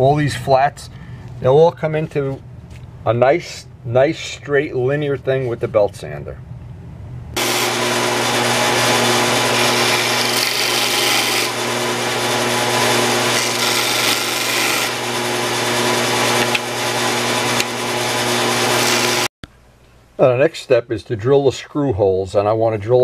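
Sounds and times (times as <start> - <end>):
disc sander grinding: 7.4 - 19.3.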